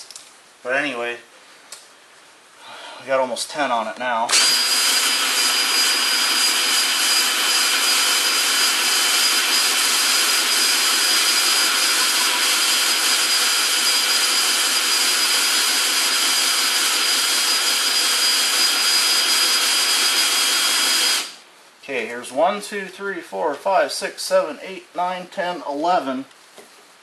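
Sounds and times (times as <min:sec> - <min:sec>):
cordless drill whining: 0:04.3 - 0:21.4.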